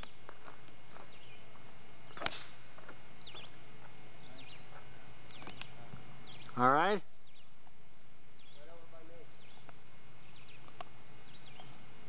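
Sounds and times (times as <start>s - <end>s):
birds chirping: 0.0s - 12.0s
steady hiss: 0.0s - 12.0s
golf club striking ball: 2.2s - 2.7s.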